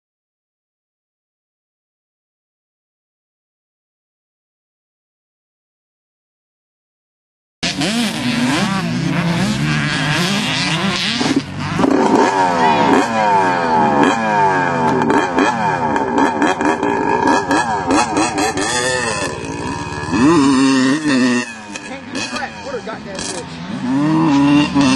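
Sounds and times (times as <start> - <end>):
dirt bike engines revving: 7.6 - 24.9.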